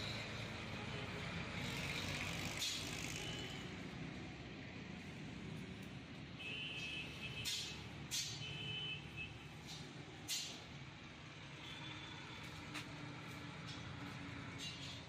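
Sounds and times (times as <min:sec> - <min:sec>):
vehicle engine rumbling: 0:09.4 - 0:15.0.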